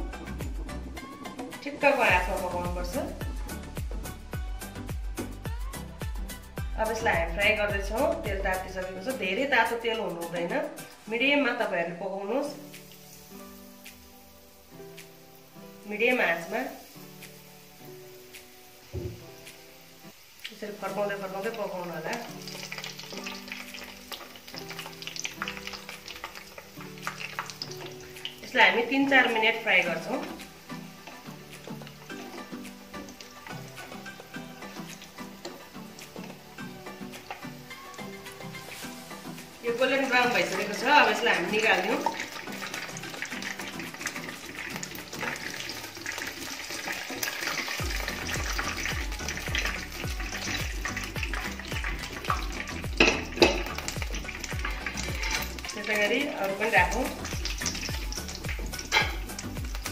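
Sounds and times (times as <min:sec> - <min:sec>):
background music with low beat: 0:00.0 - 0:09.2, 0:17.2 - 0:19.8, 0:47.2 - 0:59.9
deep-frying sizzle and crackling: 0:00.0 - 0:59.9.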